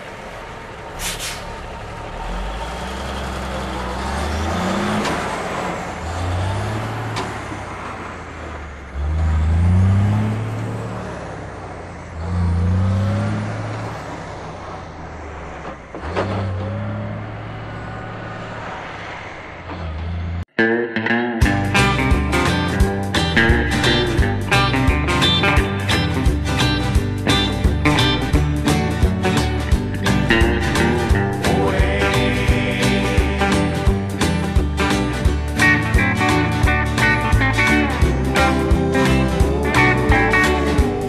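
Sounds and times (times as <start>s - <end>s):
truck diesel engine accelerating: 0.0s - 41.0s
air brake hiss: 1.0s - 1.5s.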